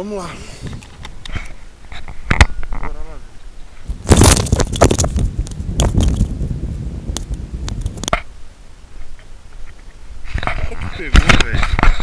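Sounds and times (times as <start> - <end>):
footsteps on dry dirt: 3.8 - 6.7.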